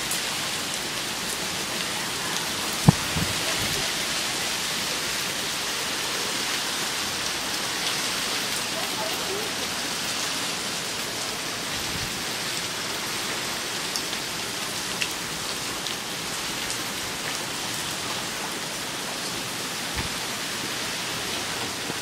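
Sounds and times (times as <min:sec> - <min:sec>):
heavy rain falling: 0:00.0 - 0:22.0
raindrops ticking close by: 0:00.0 - 0:22.0.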